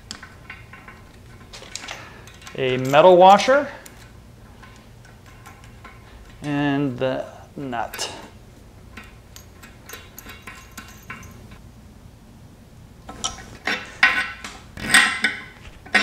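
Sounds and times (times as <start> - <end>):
small metal hardware clinking: 0.0 - 6.6, 8.9 - 11.6.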